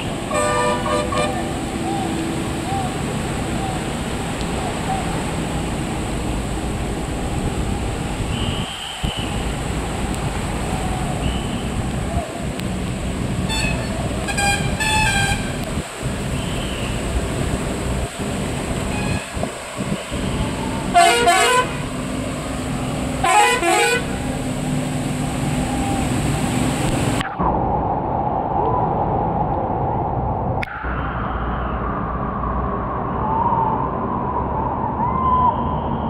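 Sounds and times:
rushing floodwater: 0:00.0 - 0:27.2
rumbling engines: 0:00.0 - 0:36.0
vehicle horns blaring: 0:00.3 - 0:01.6, 0:13.5 - 0:15.6, 0:18.9 - 0:19.4, 0:20.9 - 0:22.0, 0:23.2 - 0:24.2.

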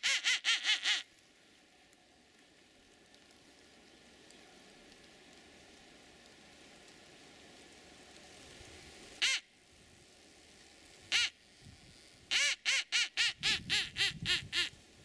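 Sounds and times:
duck call quacking: 0:00.0 - 0:01.1, 0:09.2 - 0:09.5, 0:11.1 - 0:11.3, 0:12.3 - 0:14.7.

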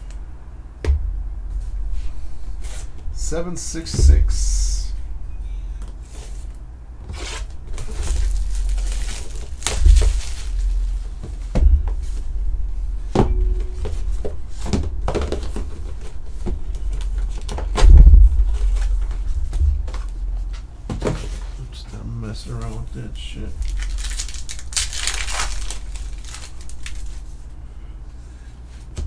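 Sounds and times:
plastic wrap crinkling and tearing: 0:07.7 - 0:11.2, 0:23.5 - 0:27.3.

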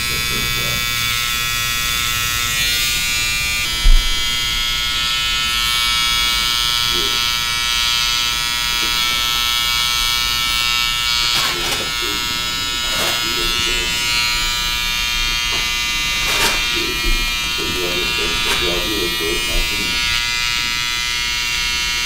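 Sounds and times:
hair trimmer buzzing: 0:00.0 - 0:22.0
low thump: 0:03.8 - 0:04.3.

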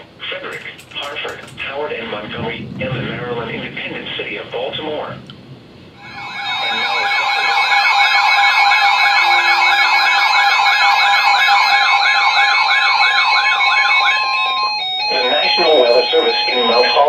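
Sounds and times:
warbling alarm tones: 0:05.9 - 0:17.0
steady beeping tones: 0:06.0 - 0:17.0.

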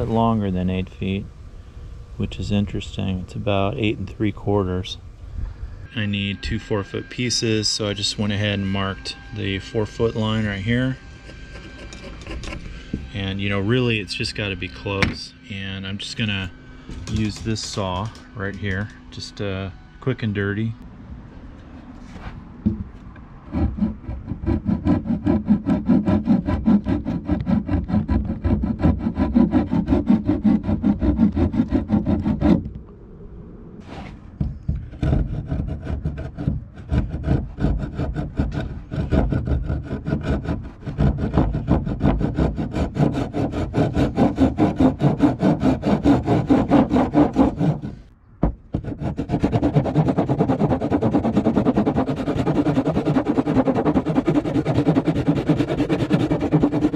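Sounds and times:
hand saw cutting wood: 0:06.1 - 0:15.0, 0:23.5 - 0:32.6, 0:34.8 - 0:48.1, 0:48.7 - 0:56.9.

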